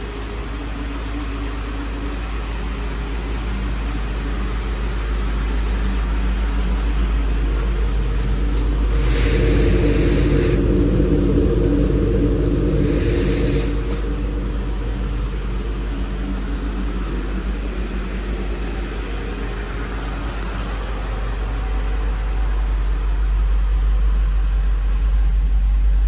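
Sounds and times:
car engine idling: 0.0s - 26.0s.

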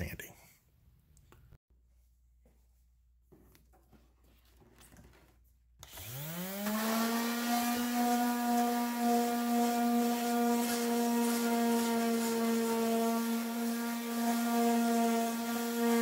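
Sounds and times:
electric sander motor: 5.8s - 16.0s.

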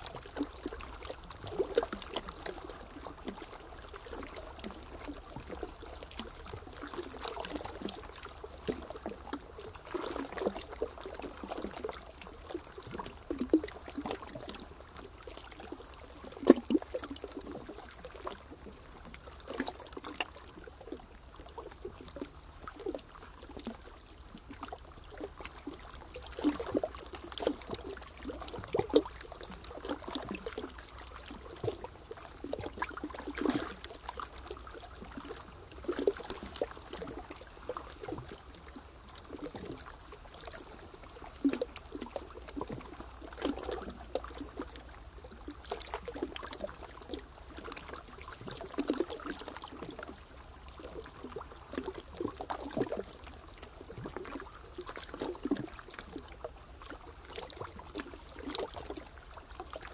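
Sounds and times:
water lapping and splashing: 0.0s - 59.9s.

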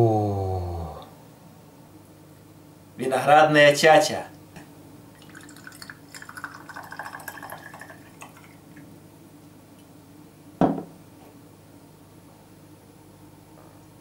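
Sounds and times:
liquid gurgling from bottle: 5.2s - 8.6s
bottle knocking on countertop: 10.6s - 10.9s.

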